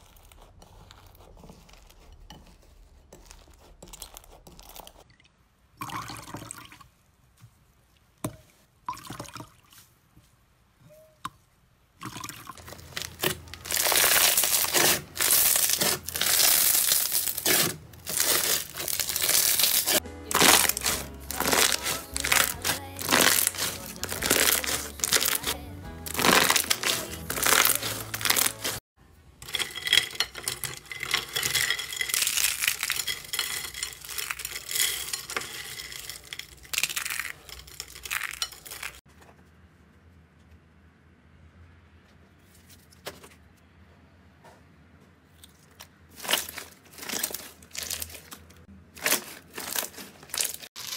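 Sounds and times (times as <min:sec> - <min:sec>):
slime squishing and crackling: 0:00.0 - 0:05.1, 0:12.5 - 0:28.8, 0:29.5 - 0:39.0, 0:46.1 - 0:50.9.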